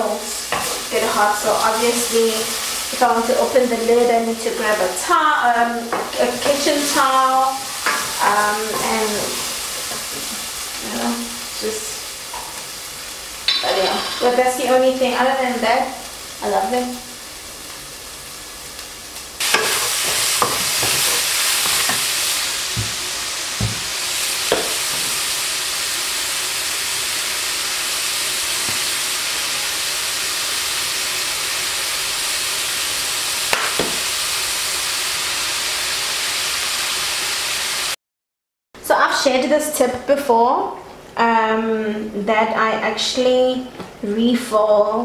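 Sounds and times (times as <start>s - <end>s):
meat sizzling in a pan: 0.0s - 38.0s
utensil knocking against pan: 22.8s - 23.0s, 23.6s - 23.9s.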